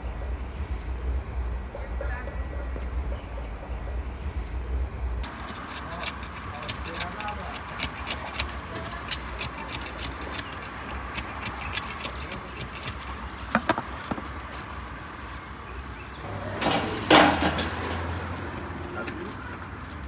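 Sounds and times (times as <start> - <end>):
metal scraper clicking on clay oven: 5.2 - 14.2.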